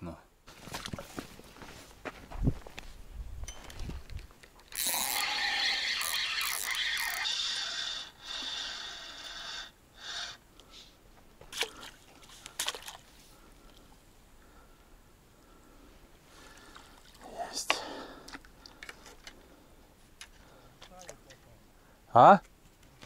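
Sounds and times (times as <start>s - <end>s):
fishing reel whirring: 4.7s - 10.4s.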